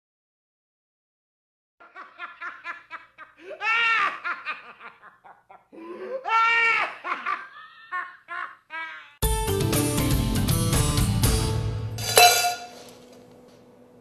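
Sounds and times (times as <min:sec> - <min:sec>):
high-pitched laughter: 0:01.9 - 0:09.2.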